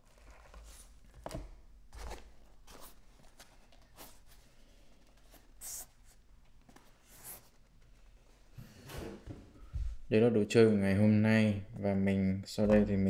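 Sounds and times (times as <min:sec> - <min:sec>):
handling cardboard boxes: 0:00.0 - 0:09.8.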